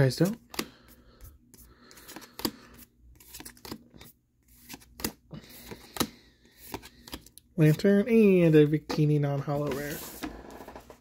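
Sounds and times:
cards rustling: 0.0 - 11.0
cards snapping: 4.5 - 7.3.

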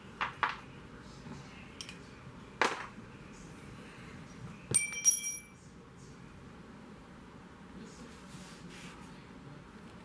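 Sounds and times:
sharp ringing metal clink: 4.7 - 5.6.

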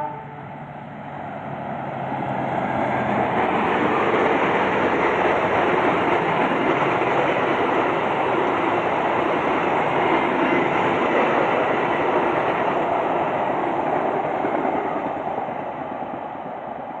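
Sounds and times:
train wheels rolling on rails: 0.6 - 17.0.

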